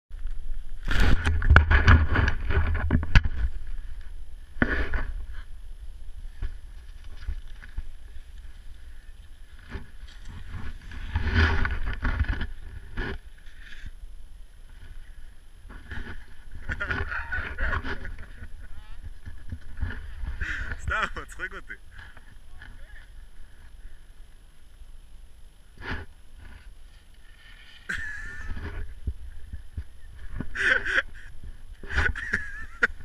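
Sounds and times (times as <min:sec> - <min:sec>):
scraping over snow: 0:06.3 - 0:13.9, 0:14.7 - 0:21.5, 0:25.8 - 0:33.0.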